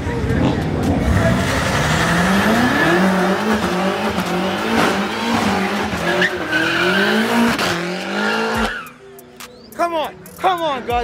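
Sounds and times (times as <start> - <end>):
car engine revving high: 0.5 - 8.8
tyres squealing on tarmac: 5.8 - 7.3.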